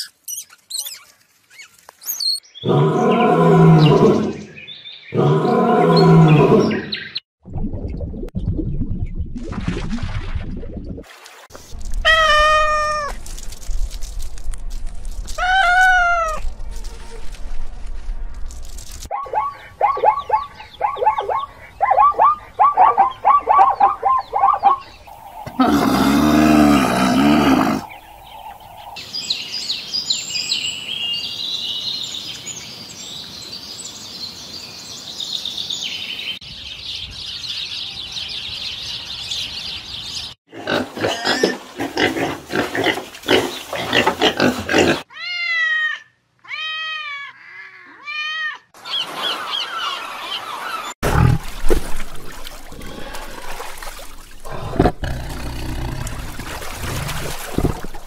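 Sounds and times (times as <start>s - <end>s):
high chirping: 0.0s - 2.6s
cat meowing: 12.0s - 13.2s, 15.4s - 16.5s
loud low animal call: 15.4s - 17.2s
zebras barking: 19.1s - 24.8s.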